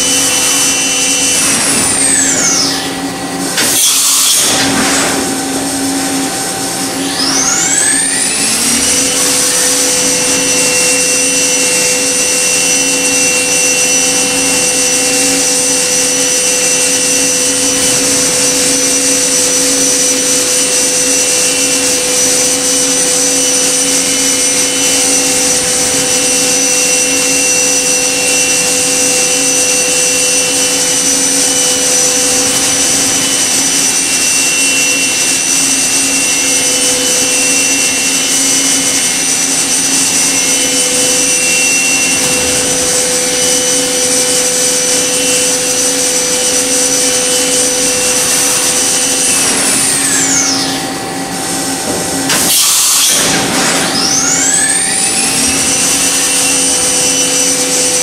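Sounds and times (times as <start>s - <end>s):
machine spindle whining: 0.0s - 58.0s.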